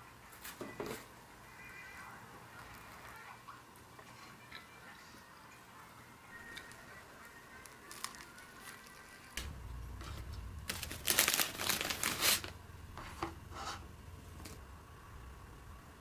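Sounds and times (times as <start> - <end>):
crinkling rustling handling noise: 7.6 - 9.4, 10.0 - 13.2.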